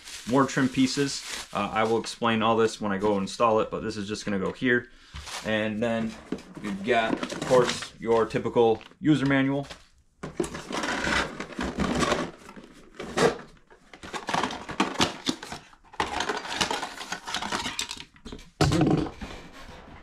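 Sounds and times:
packaging rustling and crinkling: 0.0 - 2.6, 5.1 - 18.1.

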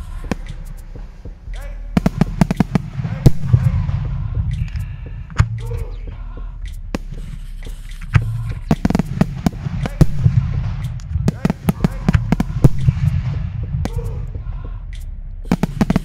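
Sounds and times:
fireworks bangs and crackles: 2.0 - 4.1, 8.7 - 13.8.

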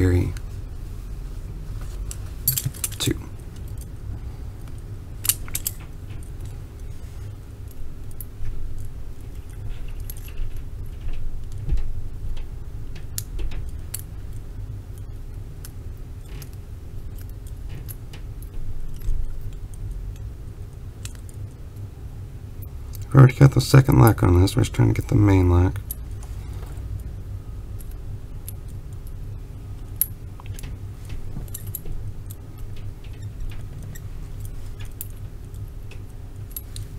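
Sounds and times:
low steady hum: 0.0 - 36.9
handcuffs clinking and rattling: 2.1 - 6.9, 7.6 - 11.1, 29.8 - 36.9
small metallic clicks and scrapes: 4.7 - 7.0, 7.6 - 20.3, 29.9 - 36.9.

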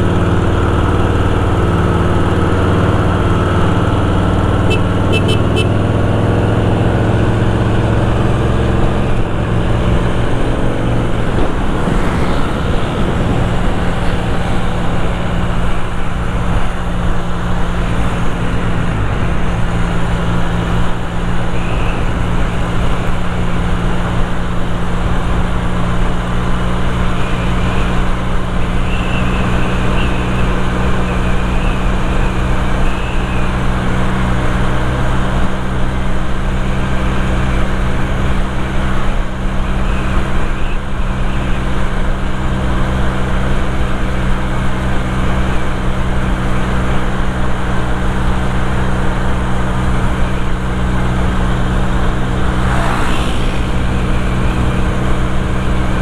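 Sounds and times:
motorcycle engine cruising: 0.0 - 56.0
road and traffic noise: 0.0 - 56.0.

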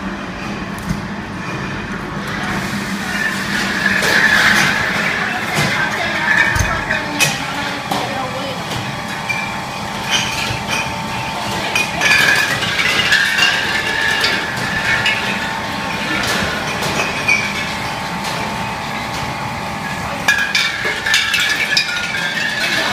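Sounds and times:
machine hum: 0.0 - 22.9
bottles clinking: 3.1 - 22.9.

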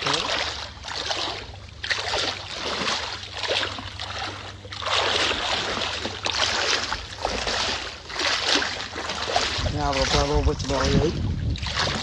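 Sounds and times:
small waves washing: 0.0 - 12.0
wind: 0.0 - 12.0
low rumble: 9.4 - 12.0.

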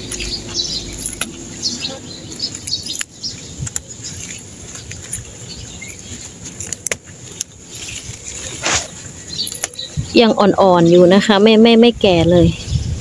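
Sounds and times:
stems snapping: 0.0 - 9.9
leaves rustling: 0.0 - 13.0.

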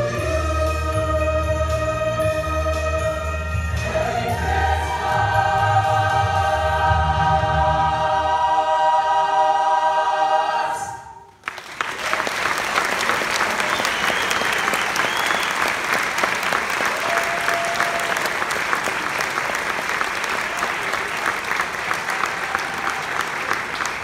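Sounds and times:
audience applauding: 11.3 - 24.0.

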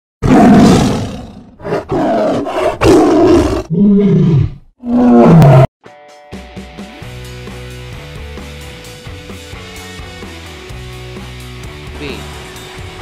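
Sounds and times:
large animal roaring: 0.2 - 5.7.

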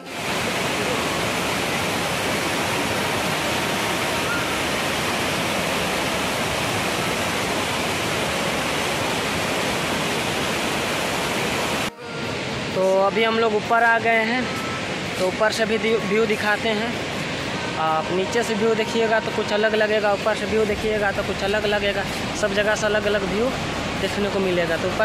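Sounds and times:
waterfall rushing: 0.0 - 25.0.

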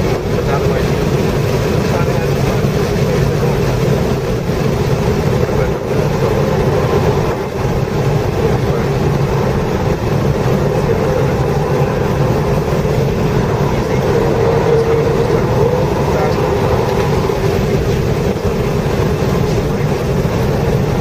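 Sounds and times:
car engine from inside cabin: 0.0 - 21.0
road and wind noise: 0.0 - 21.0.

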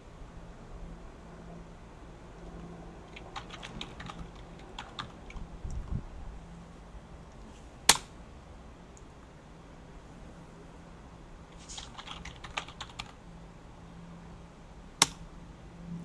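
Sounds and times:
keyboard typing: 3.1 - 5.8, 11.6 - 13.2.

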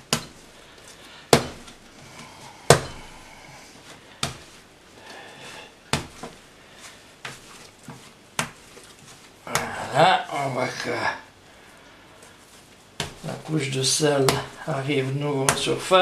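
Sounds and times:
dough slapped on table: 1.3 - 1.8, 2.7 - 3.1, 4.2 - 4.6, 5.9 - 6.4, 7.2 - 8.6.

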